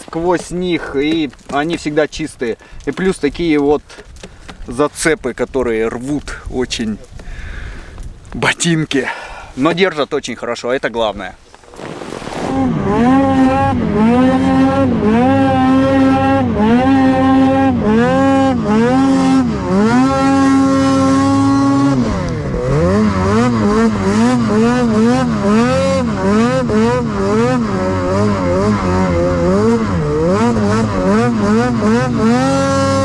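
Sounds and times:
snowmobile engine revving: 11.6 - 33.0.

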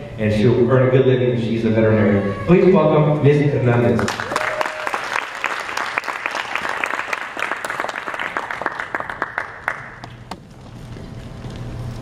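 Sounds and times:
audience applauding: 3.9 - 10.1.

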